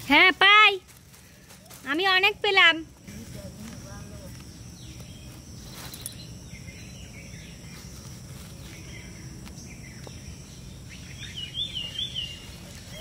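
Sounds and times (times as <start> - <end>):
insect drone: 0.0 - 13.0
small birds chirping: 0.0 - 13.0.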